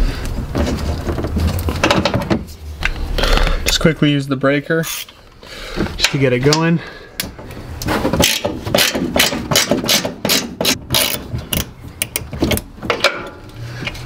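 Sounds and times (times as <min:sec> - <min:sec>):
ratchet wrench clicking: 0:08.2 - 0:12.2.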